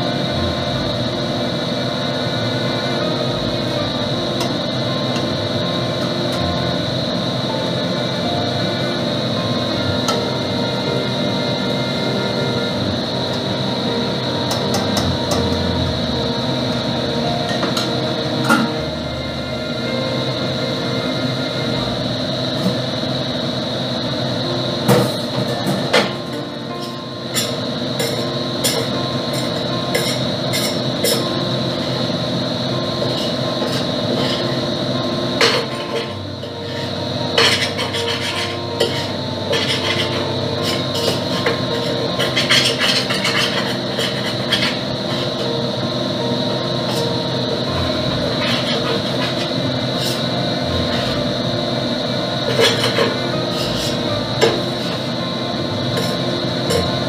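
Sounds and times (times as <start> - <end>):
kitchen extractor fan hum: 0.0 - 57.0
utensil clinking on metal pot: 37.4 - 45.4.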